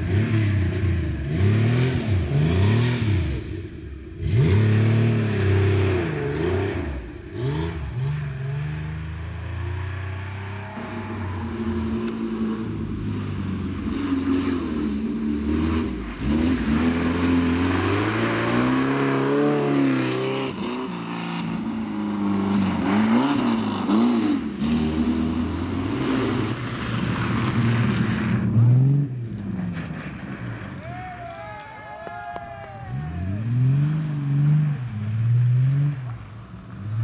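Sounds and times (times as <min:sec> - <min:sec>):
rally car engines revving: 0:00.0 - 0:30.8, 0:32.7 - 0:37.0.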